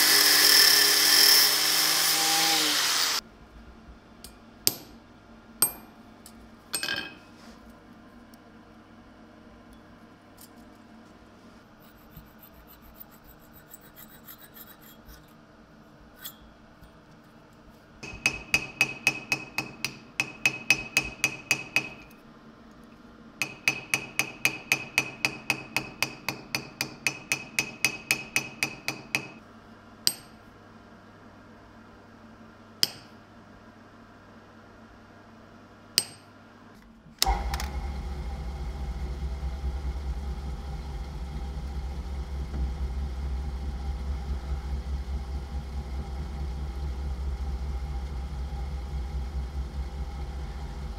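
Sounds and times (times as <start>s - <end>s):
hammer tapping on metal: 5.6s - 5.9s, 18.0s - 22.1s, 23.4s - 29.4s, 30.1s - 30.4s, 32.8s - 33.2s, 36.0s - 36.2s
hammer striking a punch: 32.8s - 33.2s.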